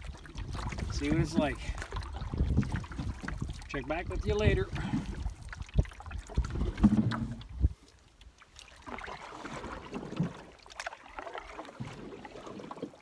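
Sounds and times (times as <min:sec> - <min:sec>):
wind rumble on microphone: 0:00.0 - 0:07.8
paddle stroke splashes: 0:00.0 - 0:13.0
water lapping around canoe: 0:00.0 - 0:13.0.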